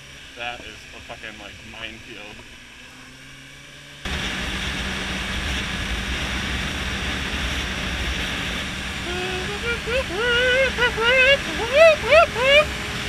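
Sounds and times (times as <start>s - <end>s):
motorcycle engine cruising: 0.0s - 13.0s
wind rushing over microphone: 4.1s - 13.0s.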